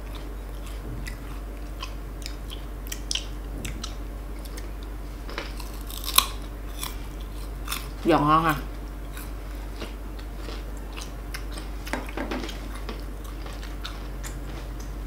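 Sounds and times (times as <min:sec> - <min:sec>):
loud crunch of biting fruit: 0:05.4 - 0:08.0.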